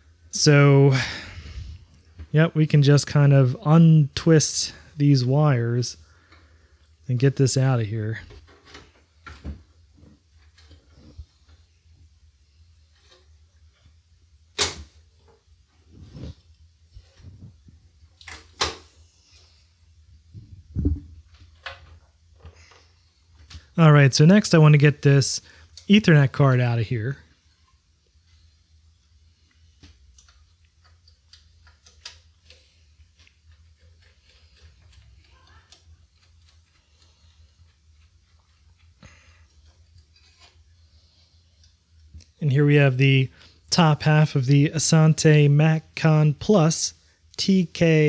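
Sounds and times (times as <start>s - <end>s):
low steady hum: 0.0s - 48.0s
plastic parts clacking: 29.8s - 40.8s.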